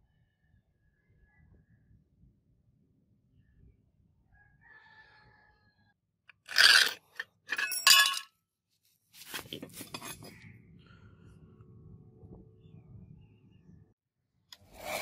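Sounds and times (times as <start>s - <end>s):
metal blade scraping on concrete: 6.3s - 8.2s, 14.6s - 15.0s
metal clatter with ring: 6.4s - 8.3s, 9.7s - 10.4s.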